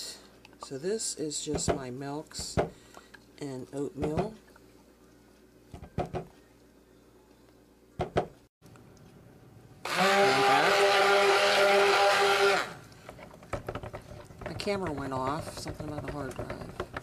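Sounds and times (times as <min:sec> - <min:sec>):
stick blender whirring: 0:09.8 - 0:17.0.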